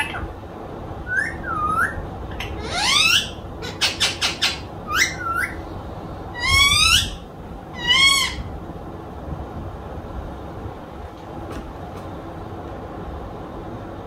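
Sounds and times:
parrot whistled squawks: 0:01.0 - 0:05.6, 0:06.4 - 0:07.2, 0:07.8 - 0:08.5.

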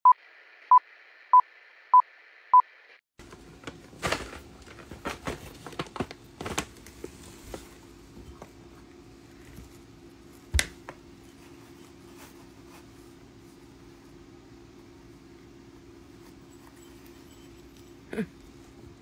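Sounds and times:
low steady hum: 0:03.2 - 0:19.0
hamster scratching in bedding: 0:11.2 - 0:14.2.

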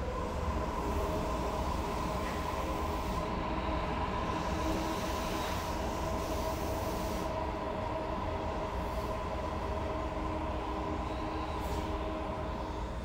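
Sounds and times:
train low rumble: 0:00.0 - 0:13.0.

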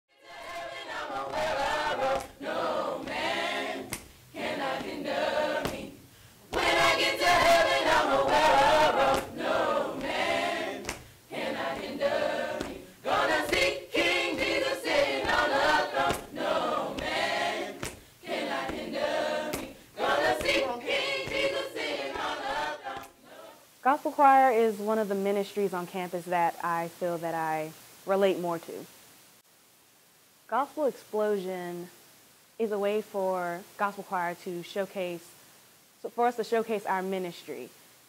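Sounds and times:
gospel choir singing: 0:00.1 - 0:23.7.

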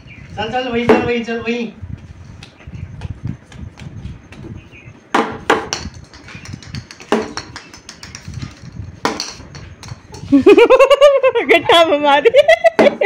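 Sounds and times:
plastic bat knocking: 0:05.1 - 0:10.2
child giggling: 0:10.1 - 0:13.0.

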